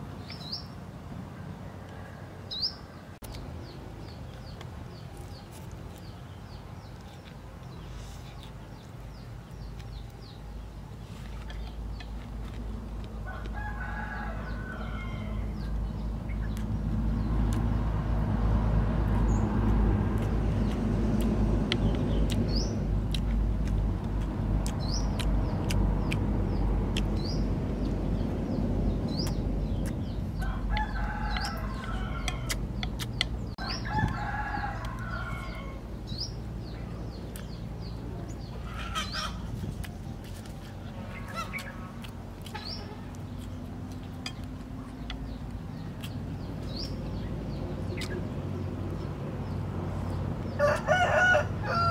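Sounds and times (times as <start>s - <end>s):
roosters crowing: 13.2s - 15.8s, 30.2s - 36.4s, 38.6s - 39.6s, 49.4s - 51.9s
low rumble: 15.3s - 38.7s
small bird chirping: 21.7s - 34.2s.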